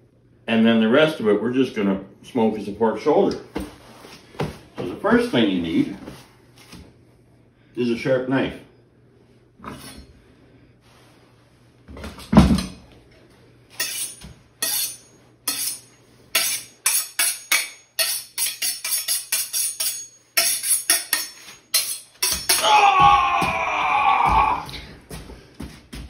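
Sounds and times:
knife scraping on sharpening steel: 0:13.8 - 0:22.6.

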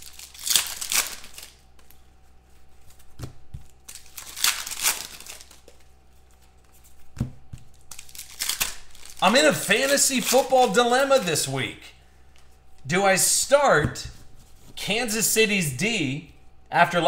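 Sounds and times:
foil wrapper crinkling and tearing: 0:00.0 - 0:06.6, 0:07.6 - 0:11.5.

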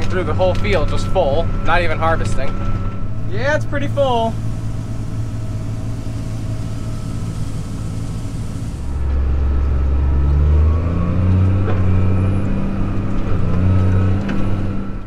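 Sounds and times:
tractor engine drone: 0:00.0 - 0:15.0
steady hiss: 0:03.2 - 0:09.1.

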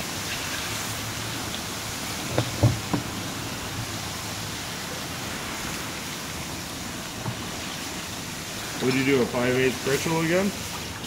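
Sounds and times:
water hissing on hot metal: 0:00.0 - 0:11.0
short knocks: 0:02.3 - 0:03.1.

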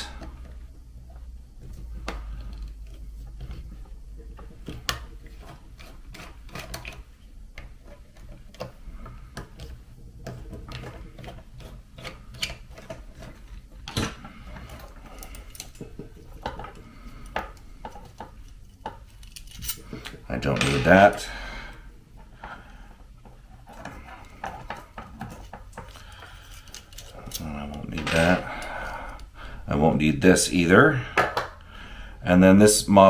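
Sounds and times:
metal parts rattling: 0:18.1 - 0:21.3.

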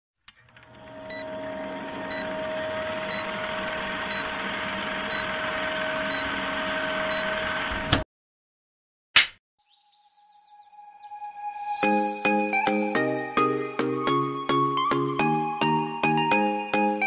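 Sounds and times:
film projector whirring: 0:00.3 - 0:08.0
sharp pop: 0:09.2 - 0:09.4.

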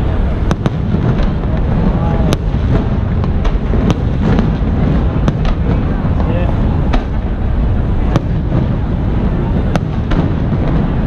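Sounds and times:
crowd noise: 0:00.0 - 0:11.0
fireworks bursting: 0:00.0 - 0:11.0.

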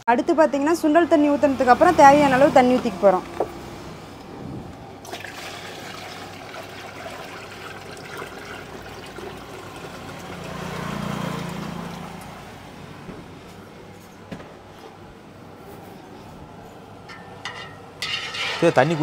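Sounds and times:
water trickling into a pan: 0:05.0 - 0:12.3.

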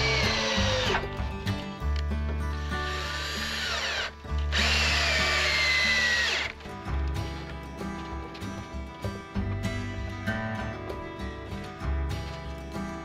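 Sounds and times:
cordless drill drilling into wood: 0:00.0 - 0:01.1, 0:02.5 - 0:06.6.

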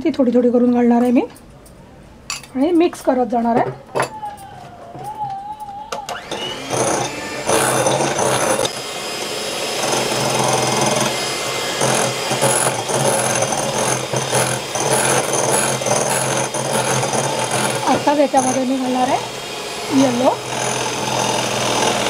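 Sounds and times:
electric hand mixer running: 0:05.9 - 0:22.0
beaters whipping in glass bowl: 0:10.0 - 0:19.3.

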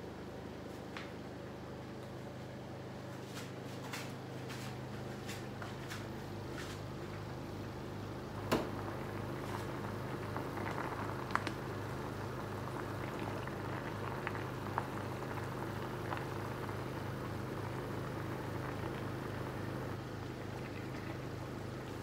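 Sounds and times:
sauce boiling in a pan: 0:08.1 - 0:22.0.

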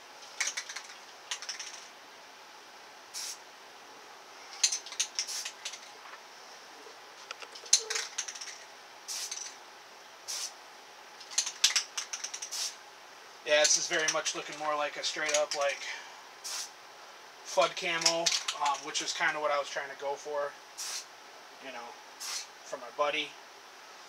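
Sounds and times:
light clicks and rattles: 0:00.2 - 0:01.9, 0:04.6 - 0:06.2, 0:07.2 - 0:08.7, 0:11.2 - 0:12.5, 0:13.6 - 0:15.9, 0:17.8 - 0:19.0
spray paint can hissing: 0:00.2 - 0:01.9, 0:03.1 - 0:03.4, 0:04.6 - 0:05.9, 0:07.7 - 0:09.6, 0:10.2 - 0:10.6, 0:11.2 - 0:12.8, 0:16.4 - 0:16.7, 0:20.8 - 0:21.1, 0:22.2 - 0:22.5.

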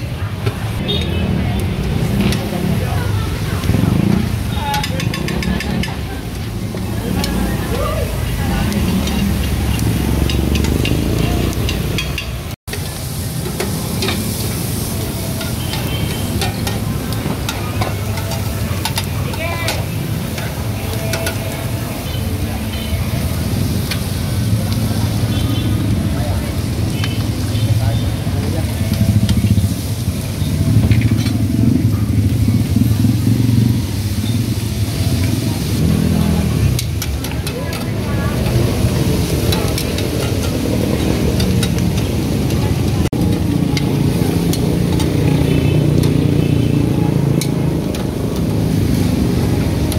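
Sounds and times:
food sizzling: 0:00.0 - 0:49.9
low engine rumble: 0:00.0 - 0:49.9
metal spoon scraping and clinking: 0:08.7 - 0:12.4.

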